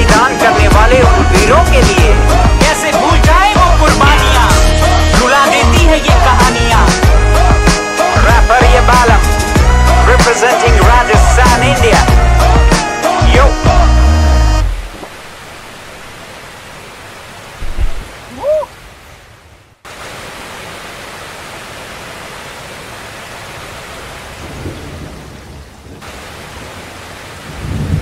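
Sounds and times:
heavy rain: 14.4 - 28.0
thunder rumbling: 27.5 - 28.0.

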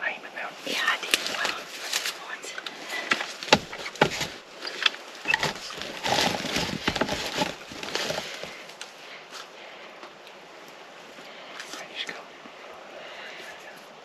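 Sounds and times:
clothing and gear rustling: 0.6 - 9.5.

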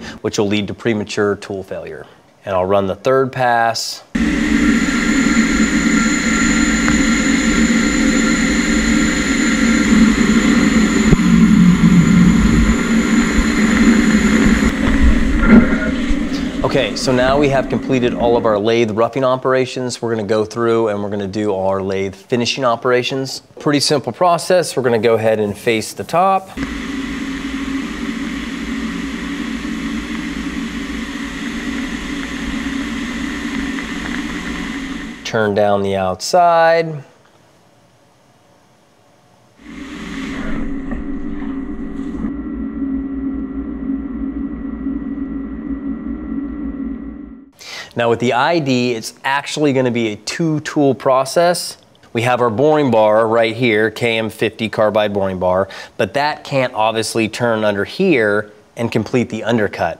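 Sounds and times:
lathe machine humming: 4.2 - 18.8, 26.6 - 35.3, 39.6 - 47.5
constant high machine tones: 4.2 - 18.9, 26.6 - 35.3, 39.6 - 47.5.

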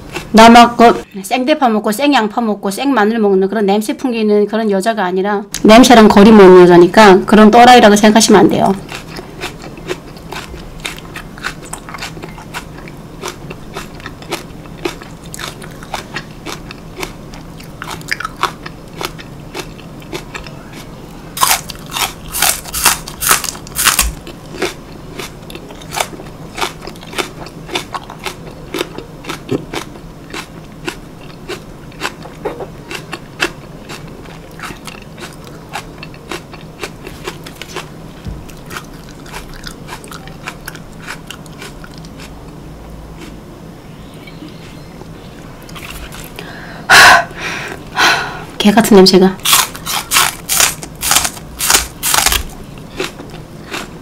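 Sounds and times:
crunching raw green onion: 8.8 - 37.9, 49.4 - 53.9.

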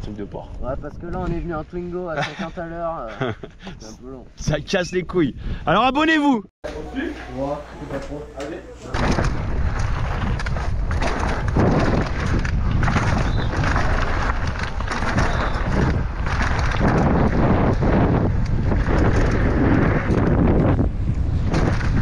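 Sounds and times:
wind buffeting microphone: 0.0 - 5.9, 9.0 - 22.0
bike knocks and rattles: 8.9 - 22.0
tyre rumble: 8.9 - 22.0.

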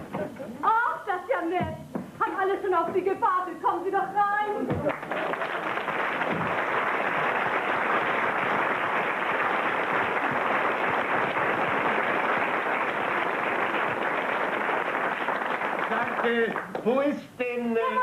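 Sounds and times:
audience applauding: 4.8 - 17.1.

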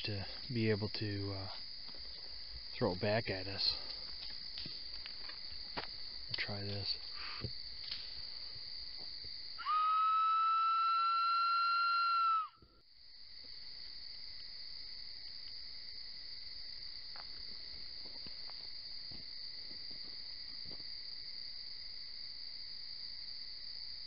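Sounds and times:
night insects chirring: 0.0 - 24.0
person whistling long note: 9.6 - 12.6.

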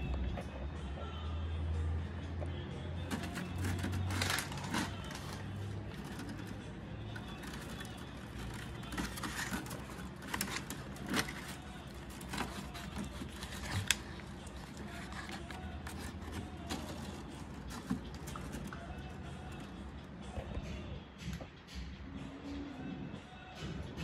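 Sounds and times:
wire leads rustling and clicking: 3.1 - 20.6.

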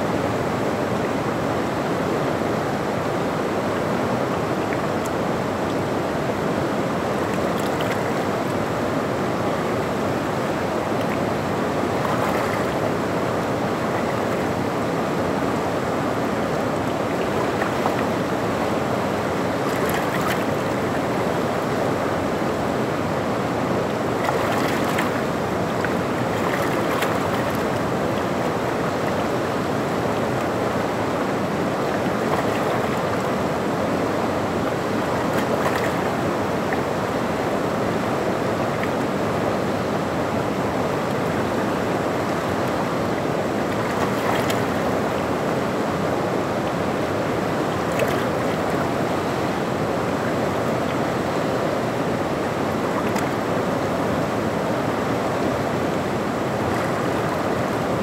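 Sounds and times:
stream water rushing over rocks: 0.0 - 58.0
water splashing: 7.0 - 8.8, 9.6 - 22.0, 23.3 - 33.6, 34.6 - 37.0, 40.9 - 45.6, 47.6 - 51.3, 52.4 - 53.7, 55.0 - 58.0.

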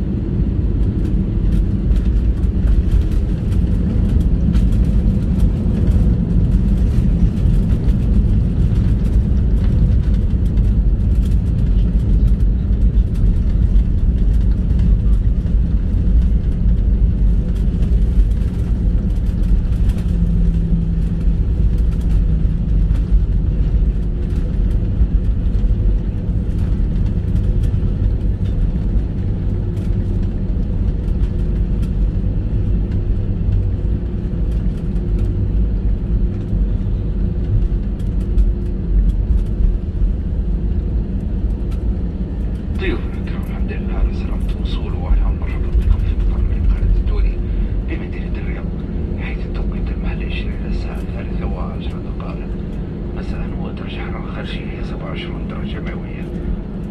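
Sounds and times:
airliner engines rumbling: 0.0 - 56.9.

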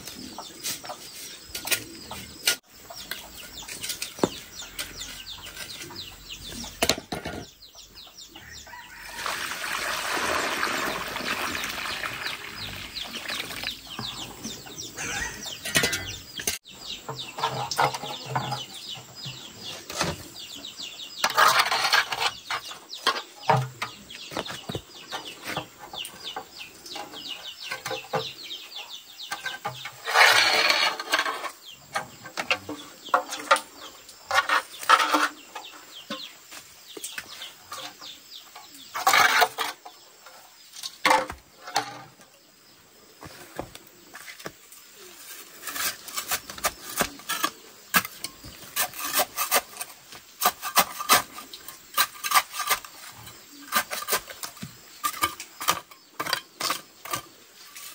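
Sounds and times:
chickens clucking: 0.0 - 9.2, 10.4 - 57.9
water pouring onto soil: 9.0 - 13.8.

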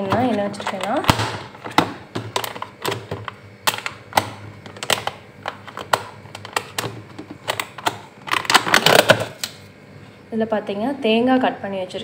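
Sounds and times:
plastic containers knocking and clicking: 0.0 - 9.6.

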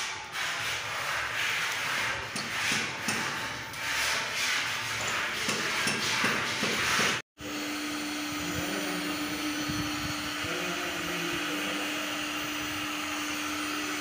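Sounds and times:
heat gun fan humming: 7.4 - 14.0.

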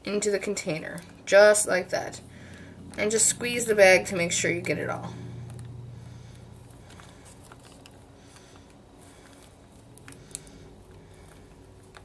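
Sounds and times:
plastic bag crinkling: 5.4 - 12.0.

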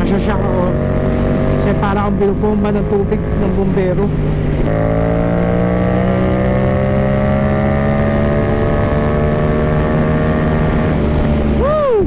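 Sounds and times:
wind rushing: 0.0 - 3.5
motorcycle engine accelerating: 0.0 - 11.9.

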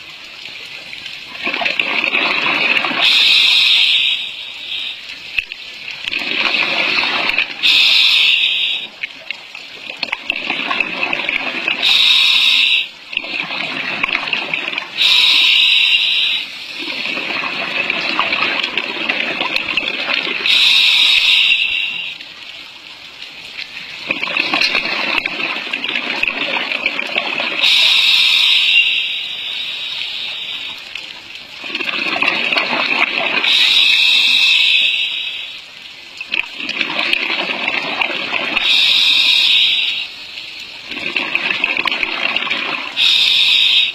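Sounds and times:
exhaled air bubbling: 1.0 - 22.2, 23.6 - 43.9
regulator inhale hissing: 7.6 - 9.0, 11.8 - 12.9, 15.0 - 16.8, 20.5 - 22.2, 27.6 - 30.9, 33.5 - 35.6, 38.6 - 40.2, 43.0 - 43.9.

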